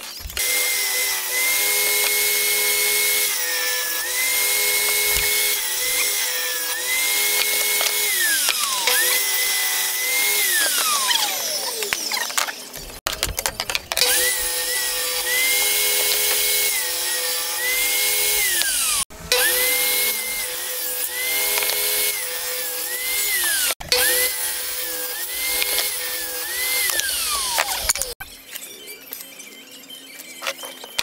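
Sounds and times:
table saw cutting wood: 0.0 - 29.2.

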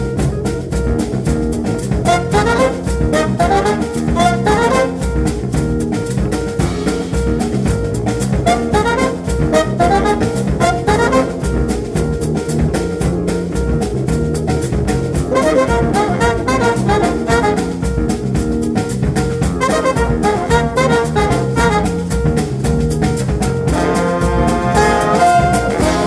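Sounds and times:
busy drums: 0.0 - 26.0
trumpets and saxophones: 2.0 - 5.3, 8.4 - 11.7, 15.2 - 18.0, 19.5 - 22.2, 23.7 - 26.0.

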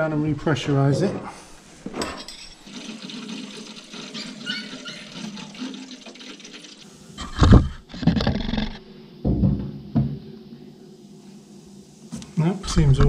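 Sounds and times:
water rushing through pipes: 2.6 - 7.9
loud thump: 9.2 - 10.2.

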